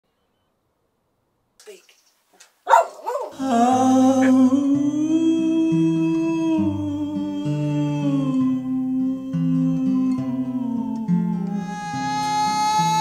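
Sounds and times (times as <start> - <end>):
acoustic guitar: 3.1 - 13.0
man singing a held note: 3.4 - 13.0.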